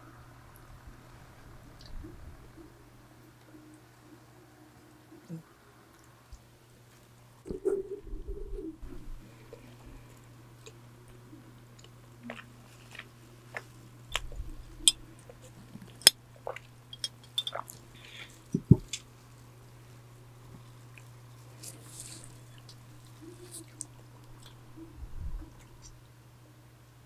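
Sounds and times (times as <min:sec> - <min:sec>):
electric fan humming: 0:00.0 - 0:27.0
biting and chewing: 0:11.7 - 0:19.1
plastic gloves crinkling: 0:20.5 - 0:24.6.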